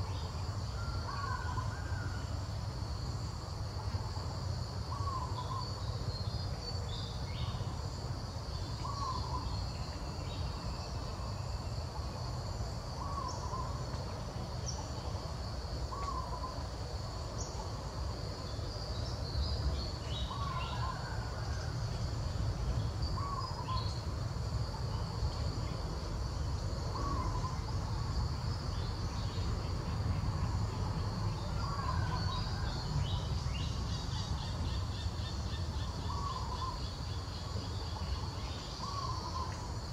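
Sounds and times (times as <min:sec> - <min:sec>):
bird hooting call: 0:26.9 - 0:27.6.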